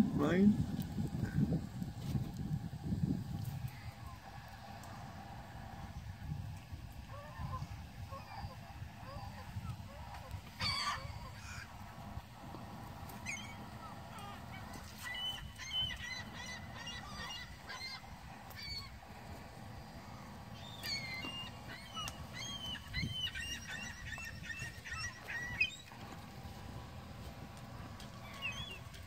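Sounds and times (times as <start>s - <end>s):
gulls calling: 3.5s - 29.0s.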